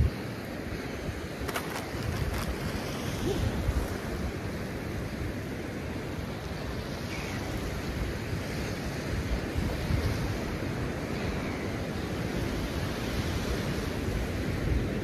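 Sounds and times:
wind buffeting microphone: 1.0s - 5.3s.

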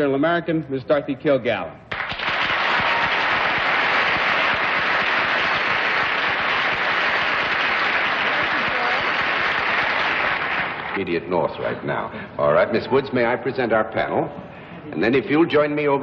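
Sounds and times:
audience applauding: 1.9s - 11.1s.

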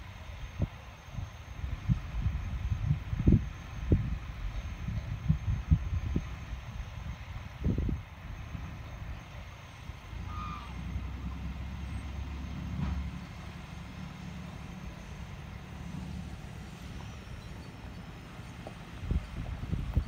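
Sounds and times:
diesel engine rumble: 0.0s - 20.0s.

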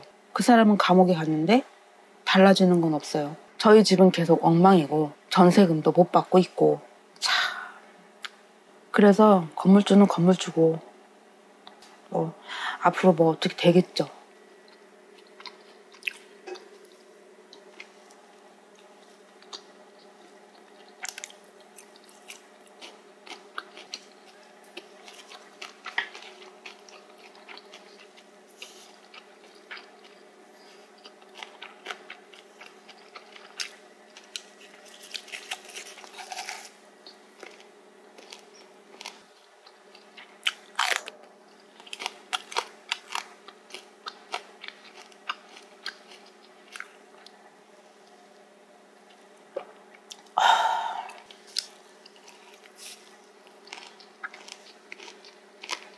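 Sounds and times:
steady low hum: 0.0s - 55.9s
chewing and crunching cartilage: 14.6s - 18.2s, 18.8s - 47.4s, 51.1s - 55.9s.

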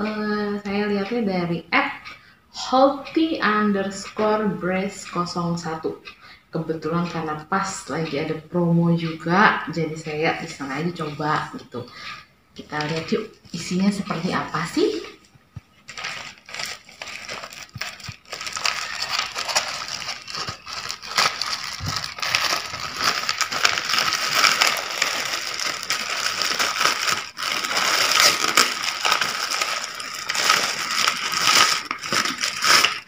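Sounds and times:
plastic and paper crinkling: 12.6s - 33.0s.

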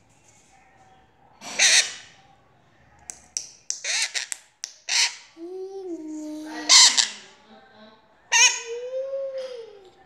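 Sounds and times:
parakeet squawking: 6.7s - 7.3s, 8.3s - 8.7s.

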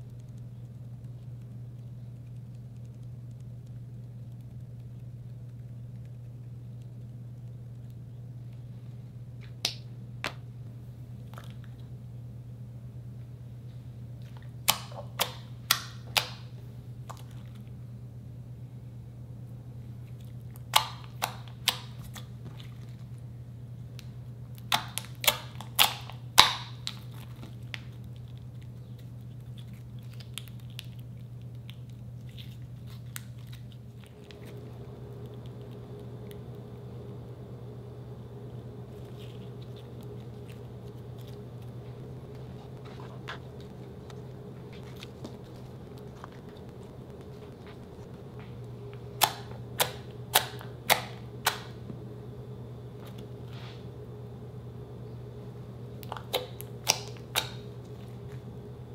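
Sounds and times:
steady low hum: 0.0s - 58.9s
slime squelching wet pops: 49.2s - 51.8s.

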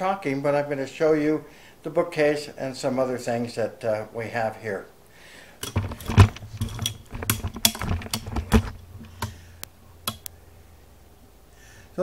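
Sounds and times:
camera handling knocks and bumps: 5.6s - 9.4s
sharp clicks: 7.1s - 10.4s.

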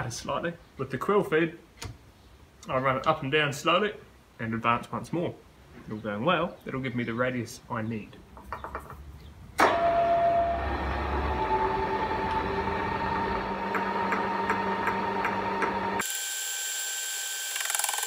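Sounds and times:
milling machine motor whine: 9.6s - 18.0s.

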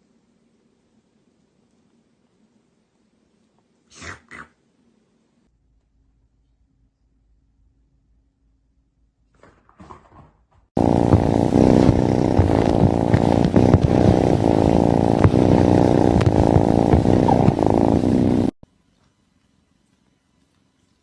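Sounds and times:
cat purring: 10.8s - 18.6s.

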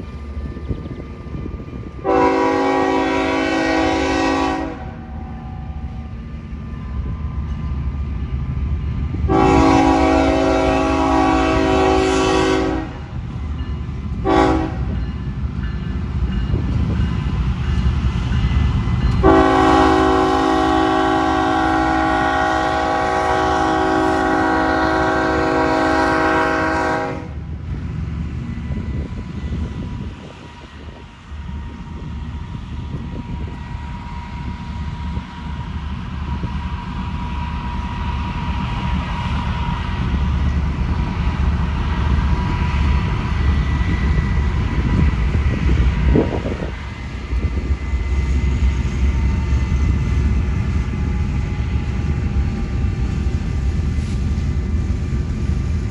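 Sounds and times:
train rumble: 0.0s - 55.9s
locomotive horn blasts: 2.0s - 5.3s, 9.3s - 13.0s, 14.2s - 15.0s, 19.2s - 27.4s.

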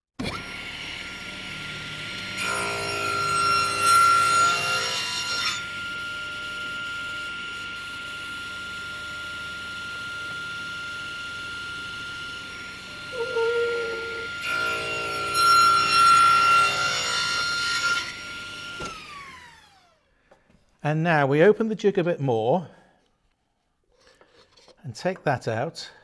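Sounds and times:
saw blade cutting wood: 0.2s - 5.8s, 13.0s - 19.7s
table saw whining: 0.2s - 20.1s.

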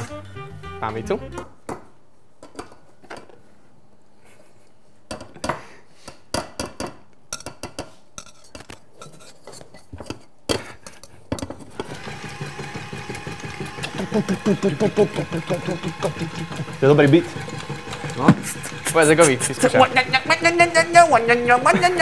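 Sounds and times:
utensil scraping metal bowl: 8.2s - 10.2s, 11.8s - 22.0s
stand mixer motor hum: 11.8s - 22.0s.

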